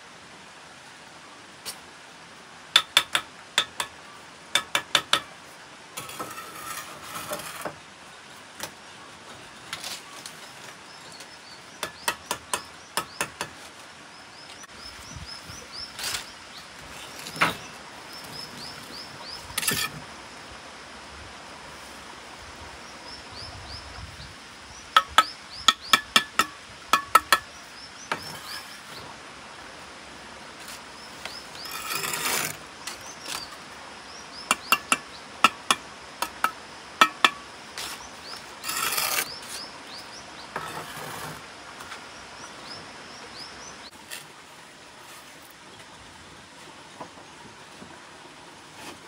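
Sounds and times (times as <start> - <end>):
trowel tapping bricks: 4.6 - 5.3, 25.0 - 27.5, 34.5 - 38.0
knocks and scrapes: 6.0 - 7.9, 16.0 - 17.8, 19.5 - 20.1, 28.1 - 29.2, 30.6 - 33.6, 36.2 - 39.7, 40.5 - 42.0.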